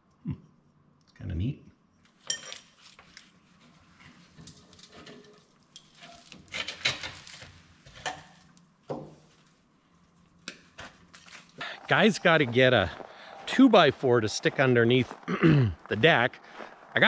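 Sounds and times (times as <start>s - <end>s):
clatter of tools and metal parts: 2.1s - 3.3s, 4.0s - 8.4s.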